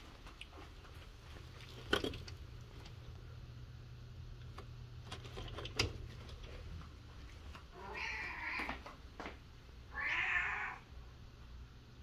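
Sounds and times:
cat meowing: 7.7 - 8.8, 9.9 - 10.9.

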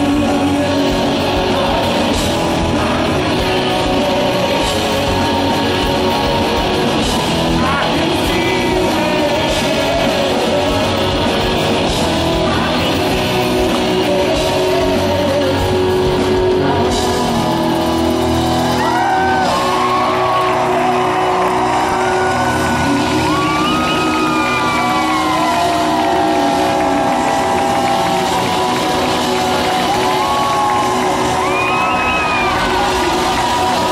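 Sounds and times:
man singing: 0.0 - 17.5, 22.4 - 28.1
live rock band playing: 0.0 - 33.9.

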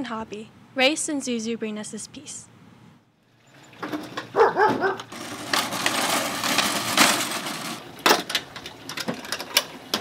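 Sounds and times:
wheels rolling on wooden plank: 3.3 - 10.0.

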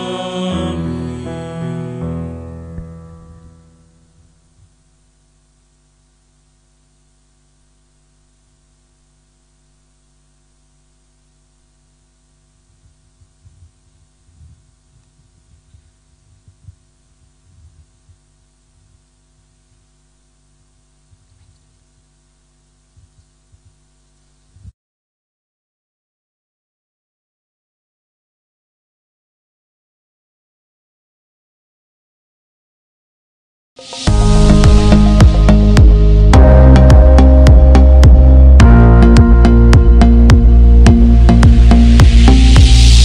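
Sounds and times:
electrical hum: 0.0 - 24.7, 34.0 - 43.0
microphone handling thuds: 12.7 - 19.1, 22.9 - 23.8.

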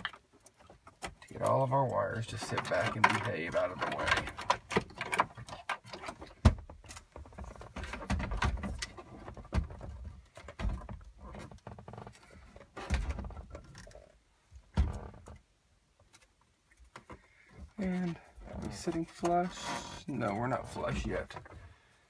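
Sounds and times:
cables rustling and knocking: 0.0 - 21.8
car stereo scraping against dash: 18.5 - 21.3.

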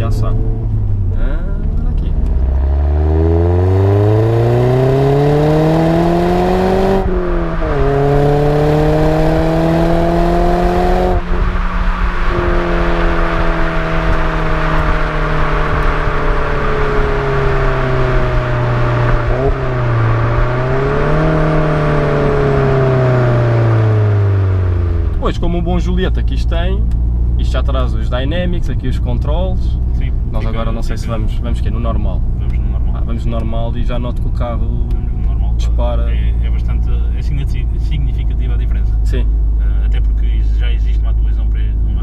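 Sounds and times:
car engine revving through gears: 0.0 - 25.2.

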